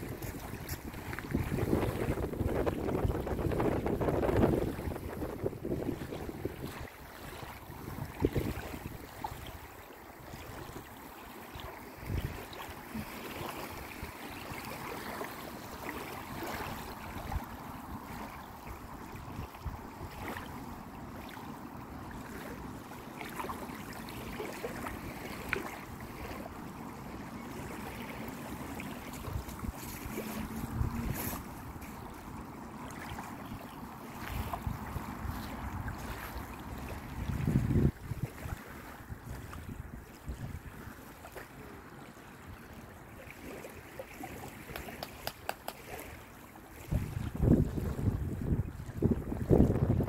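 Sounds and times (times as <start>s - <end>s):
wind buffeting microphone: 0.0s - 9.5s, 26.0s - 41.0s, 46.8s - 50.0s
small waves lapping on stones: 0.0s - 48.1s.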